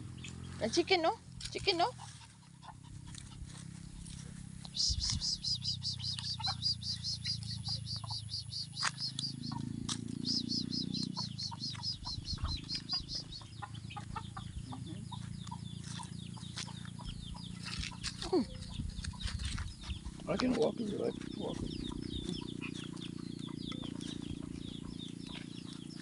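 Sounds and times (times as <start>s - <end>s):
chicks peeping: 0.0s - 26.0s
chicken calls: 4.0s - 26.0s.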